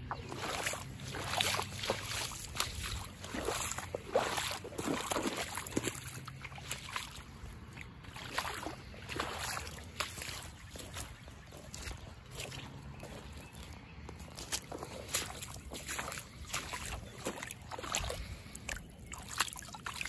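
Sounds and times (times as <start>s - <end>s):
squishing footsteps in mud: 0.0s - 20.0s
brushing through dead grass: 0.2s - 5.8s.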